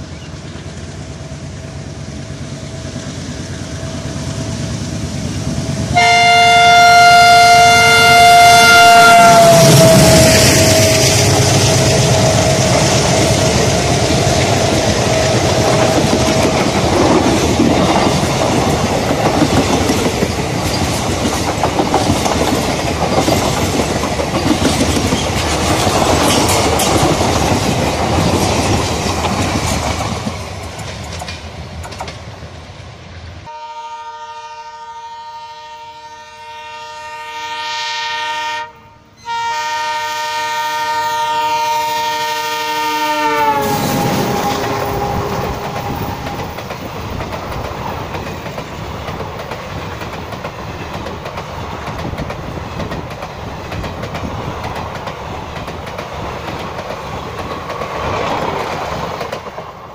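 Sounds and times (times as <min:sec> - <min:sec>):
locomotive horn: 0:05.8 - 0:16.5, 0:33.5 - 0:46.4
train wheels clattering: 0:09.4 - 0:32.3, 0:43.3 - 0:59.9.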